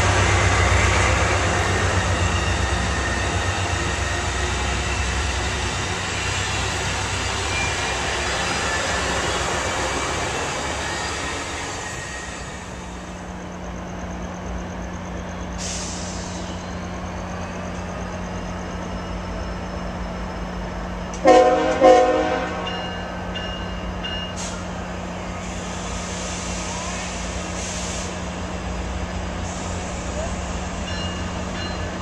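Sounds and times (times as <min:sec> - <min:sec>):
locomotive horn blasts: 0:21.2 - 0:22.8.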